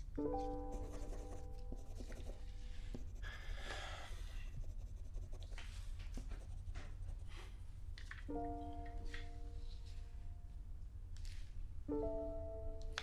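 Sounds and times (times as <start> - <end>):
soft music chord: 0.0 - 3.1, 8.3 - 10.7, 11.8 - 13.0
steady low hum: 0.0 - 7.9
pencil and crayon scratching: 0.4 - 7.5.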